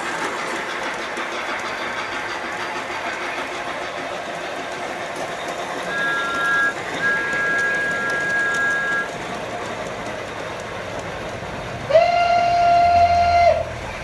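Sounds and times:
model train wheels rattling: 0.0s - 13.0s
model locomotive whistle: 5.9s - 9.1s, 11.9s - 13.8s.

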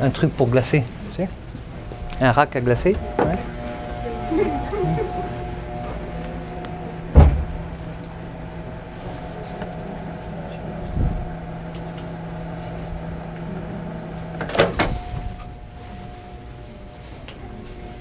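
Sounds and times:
mixer motor humming: 0.9s - 14.5s.

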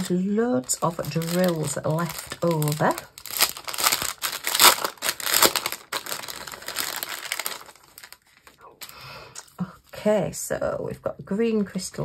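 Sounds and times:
plastic bags crinkling: 0.0s - 9.3s.

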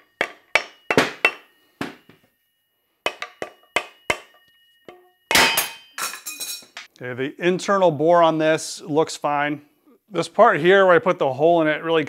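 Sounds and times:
hammer striking steel: 0.0s - 2.2s, 3.0s - 6.8s
metal ringing: 0.0s - 2.3s, 3.0s - 6.9s.

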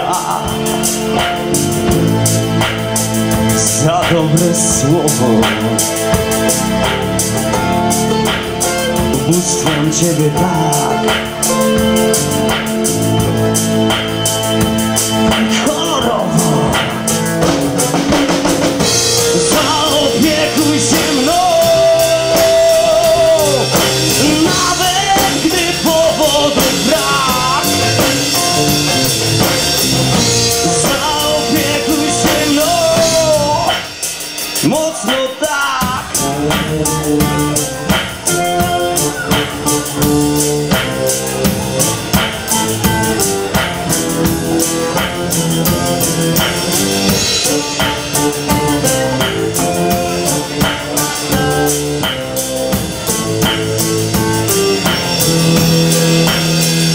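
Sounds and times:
man singing: 0.0s - 6.5s, 7.7s - 13.2s, 15.2s - 18.0s, 18.8s - 41.1s, 46.4s - 52.2s
drum hits: 0.0s - 56.9s
electric bass: 0.0s - 56.9s.

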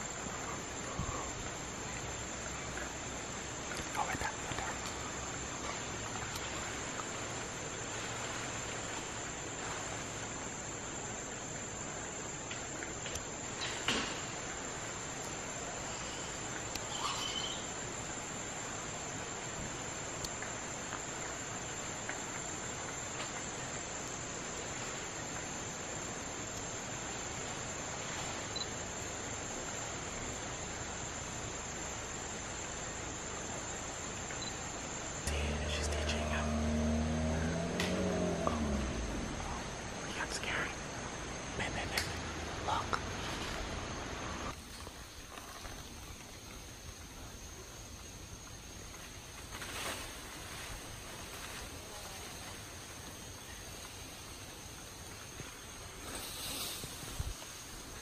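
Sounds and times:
faint ticks: 0.0s - 7.2s, 20.2s - 21.4s, 35.2s - 39.8s, 41.6s - 42.2s
insects droning: 0.0s - 58.0s
rainforest ambience hiss: 0.0s - 58.0s.

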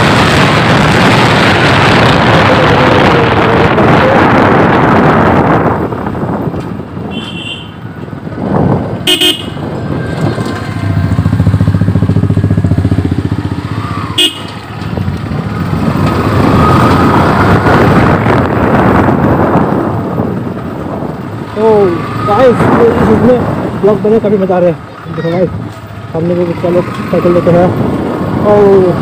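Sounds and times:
horn toots: 7.1s - 7.8s, 9.0s - 9.7s, 14.1s - 14.7s
motorcycle engine running: 8.4s - 29.0s.

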